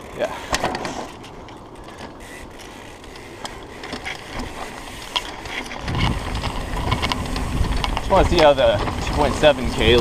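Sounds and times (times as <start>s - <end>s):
bike clicks and rattles: 0.0s - 10.0s
bike tyres on dirt trail: 0.0s - 10.0s.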